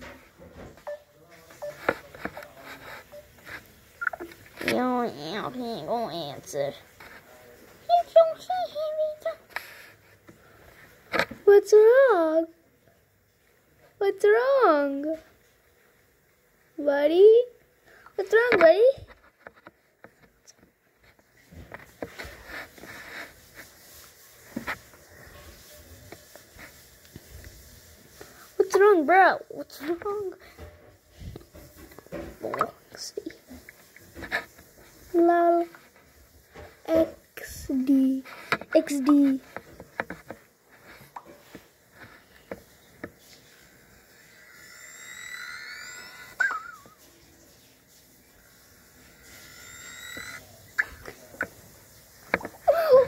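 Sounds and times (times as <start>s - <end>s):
rustling handling noise: 0.0s - 11.4s, 18.3s - 43.9s
rising app tone: 44.6s - 46.4s.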